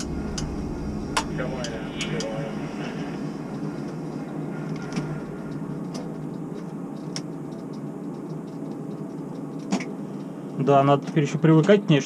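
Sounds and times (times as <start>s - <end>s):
crane electric motor hum: 0.0s - 12.0s.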